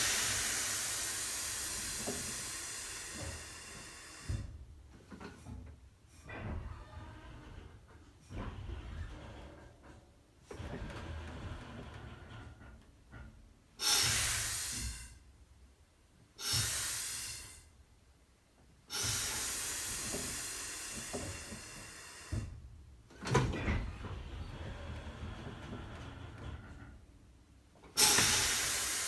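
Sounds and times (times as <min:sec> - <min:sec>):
air brake valve hissing: 0:00.0 - 0:04.6, 0:13.8 - 0:15.3, 0:16.4 - 0:17.7, 0:18.9 - 0:22.5, 0:28.0 - 0:29.0.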